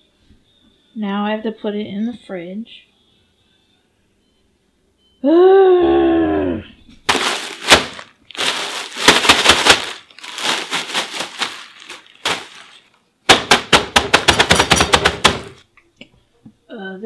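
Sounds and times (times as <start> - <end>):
crackers crunching: 7.1 - 13.0
plastic bag crinkling: 7.1 - 13.0.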